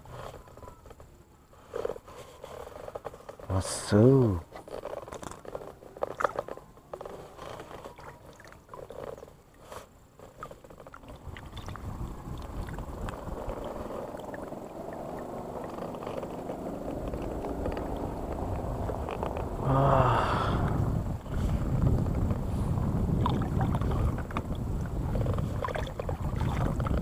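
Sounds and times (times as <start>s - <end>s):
fishing gear clicking and rustling: 0.0s - 19.6s
boat motor running: 4.6s - 27.0s.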